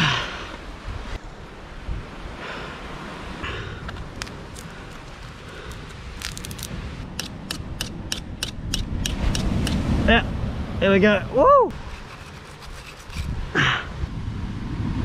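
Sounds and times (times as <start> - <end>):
sharp ticks and scrapes: 4.0 - 9.8, 11.7 - 13.4
fibre tearing and rustling: 4.2 - 6.8.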